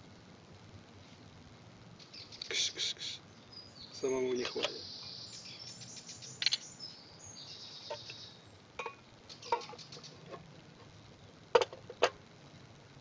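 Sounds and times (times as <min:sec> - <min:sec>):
metal cookware clinking: 0:08.8 - 0:09.8.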